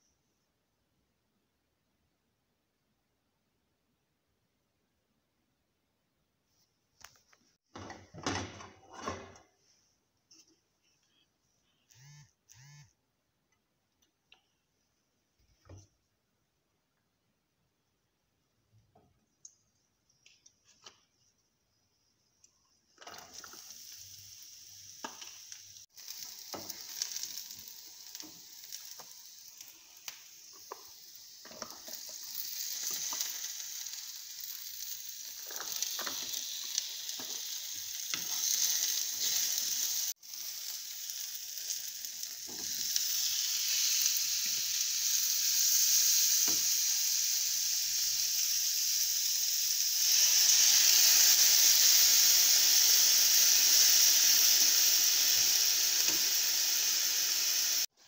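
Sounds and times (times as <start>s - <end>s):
vegetables sizzling in oil: 22.7s - 58.0s.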